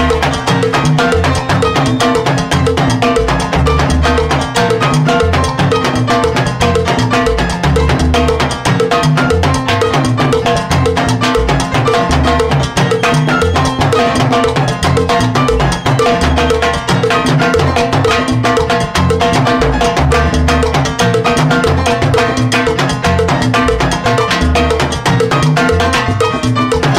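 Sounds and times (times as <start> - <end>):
salsa band playing: 0.0 - 26.9
timbales played with sticks: 0.0 - 26.9.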